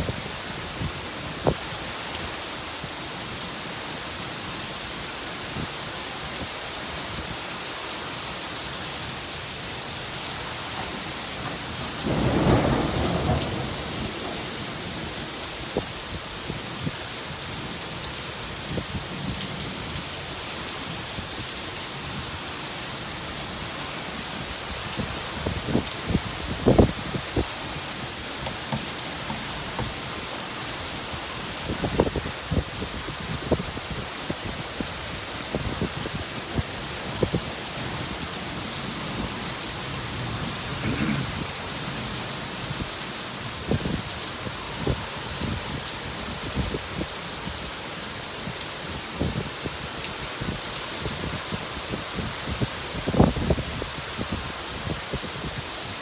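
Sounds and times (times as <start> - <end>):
heavy rain on pavement: 0.0 - 56.0
big raindrops thudding: 10.3 - 16.1, 24.8 - 34.6.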